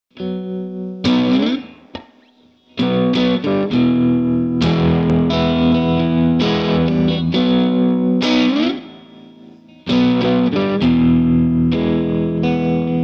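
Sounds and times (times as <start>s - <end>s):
electric guitar strumming: 0.1s - 13.0s.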